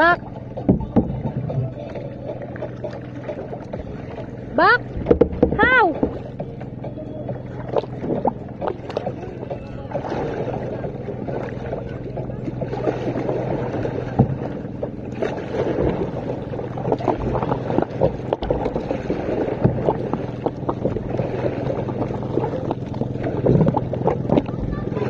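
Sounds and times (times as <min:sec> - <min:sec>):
paddle strokes splashing water: 0:00.0 - 0:25.0
knocks: 0:05.0 - 0:06.2.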